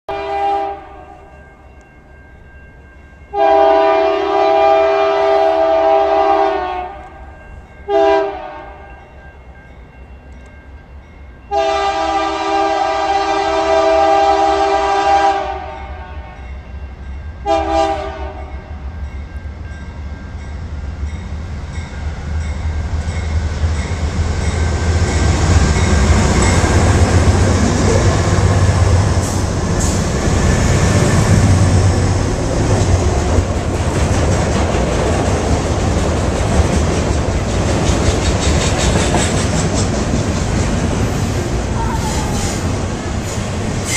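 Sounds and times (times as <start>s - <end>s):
locomotive air horn: 0.1s - 1.3s, 3.3s - 7.2s, 7.9s - 8.8s, 11.5s - 16.4s, 17.4s - 18.5s
train rumbling past on rails: 0.1s - 43.9s.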